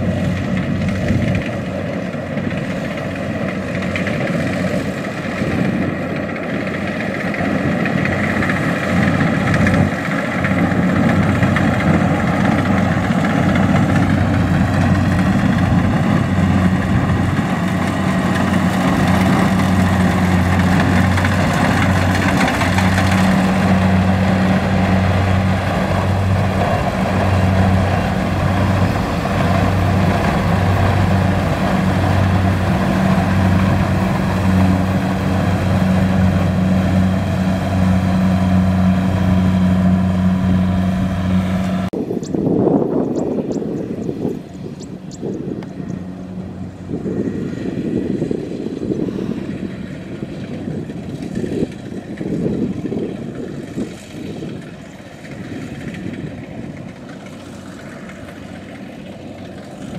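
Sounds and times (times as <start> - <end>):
combine harvester engine humming: 0.0 - 59.9.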